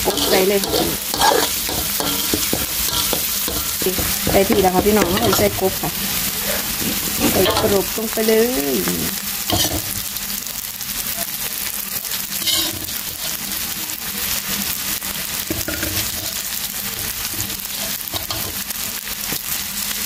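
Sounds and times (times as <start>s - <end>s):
metal spatula scraping wok: 0.0s - 8.2s, 8.8s - 10.1s, 12.3s - 13.6s, 15.4s - 18.7s
frying in hot oil sizzling: 0.0s - 20.0s.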